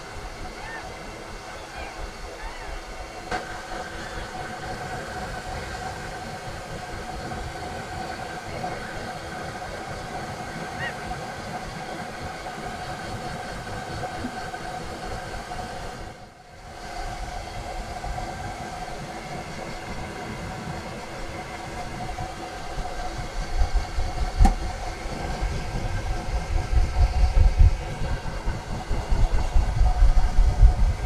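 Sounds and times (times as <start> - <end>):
hair dryer running: 16.6 - 31.0.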